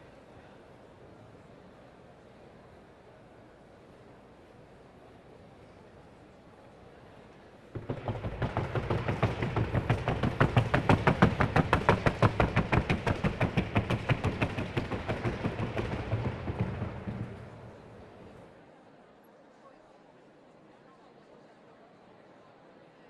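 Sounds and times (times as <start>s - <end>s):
hoofbeats on wooden board: 7.8s - 18.4s.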